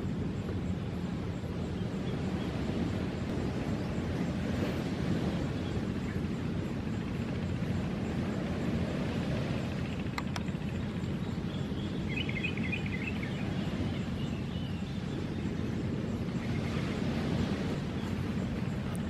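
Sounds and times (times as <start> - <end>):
low rumble of wind or surf: 0.0 - 19.0
faint clicks: 10.0 - 10.6.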